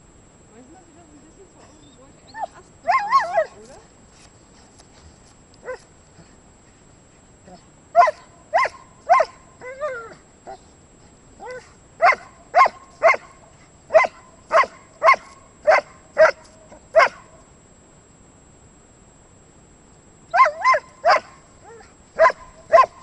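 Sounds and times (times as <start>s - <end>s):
dog whining: 1.6s - 3.6s, 7.5s - 10.6s, 11.4s - 11.8s
dog barking: 8.0s - 9.4s, 11.5s - 17.4s, 20.4s - 23.0s.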